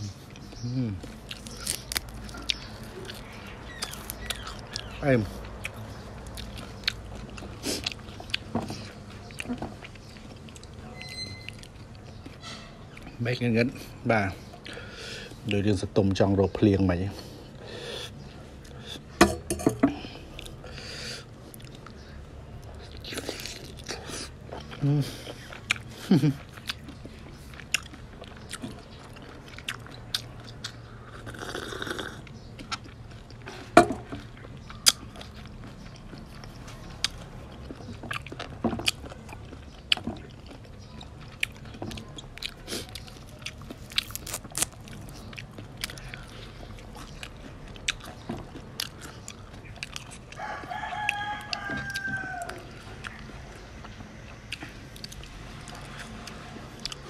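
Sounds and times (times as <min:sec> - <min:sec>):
wet chewing: 0:00.2 - 0:13.5, 0:17.2 - 0:57.0
rooster crowing: 0:50.3 - 0:52.8.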